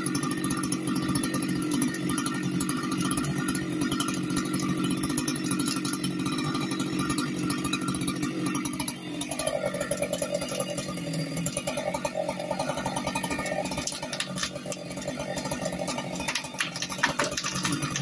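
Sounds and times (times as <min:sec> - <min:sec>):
chainsaw cutting under load: 0:00.0 - 0:18.0.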